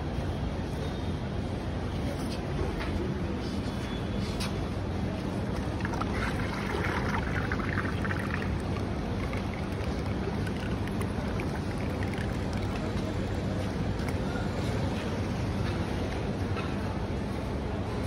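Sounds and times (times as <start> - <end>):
street traffic rumble: 0.0 - 18.0
yogurt pouring into a pot: 5.5 - 14.2.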